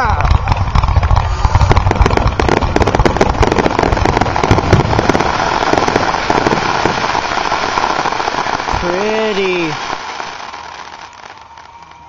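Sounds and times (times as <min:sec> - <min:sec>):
fireworks crackling and banging: 0:00.0 - 0:12.0.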